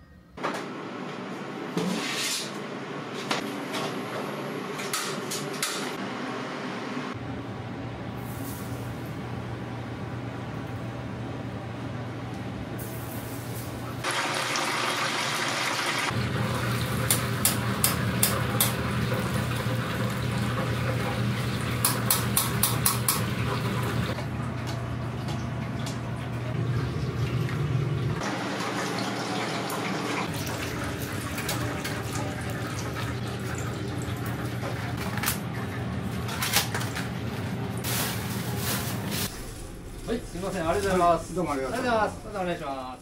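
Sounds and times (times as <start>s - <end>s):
chicken sizzling in deep fryer oil: 12.9s - 24.2s.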